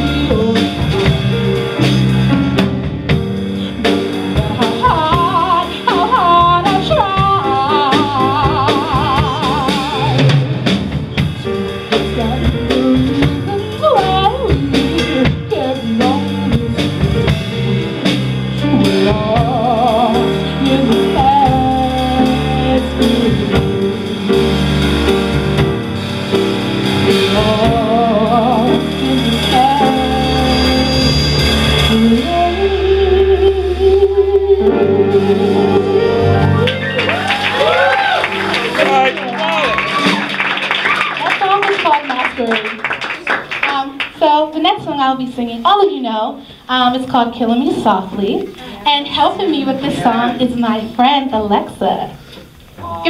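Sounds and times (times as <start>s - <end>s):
woman singing with vibrato: 0.0s - 1.1s, 3.6s - 10.4s, 12.0s - 17.0s, 18.6s - 24.9s, 27.1s - 36.5s
drum kit with cymbals: 0.0s - 42.7s
piano: 0.0s - 53.0s.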